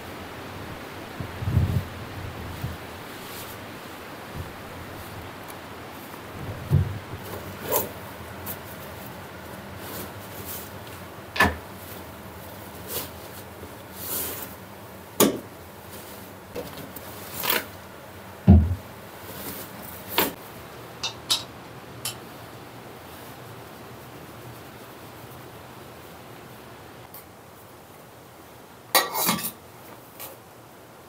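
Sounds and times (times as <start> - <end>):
heavy low thump: 18.5 - 18.8.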